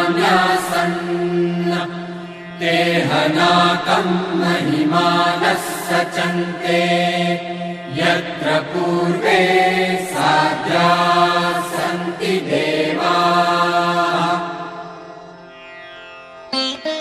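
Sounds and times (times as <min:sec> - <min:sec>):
steady held drone: 0:00.0 - 0:15.8
voice chanting a mantra: 0:02.6 - 0:14.7.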